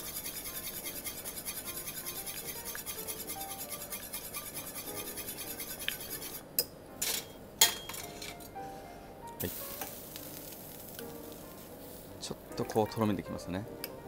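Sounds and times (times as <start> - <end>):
whisk scraping saucepan: 0.0 - 6.4
soft background music: 0.0 - 14.0.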